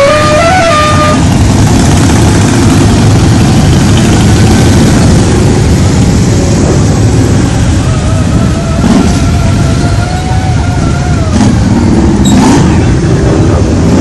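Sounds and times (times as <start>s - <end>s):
horn playing stepped notes: 0.0s - 1.3s
motorcycle engines rumbling: 0.0s - 14.0s.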